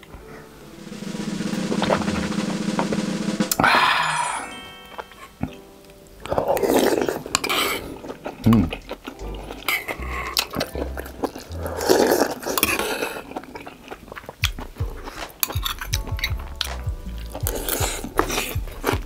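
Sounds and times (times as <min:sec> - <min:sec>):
loud noisy burst: 0:00.5 - 0:04.5
person chewing: 0:05.4 - 0:19.0.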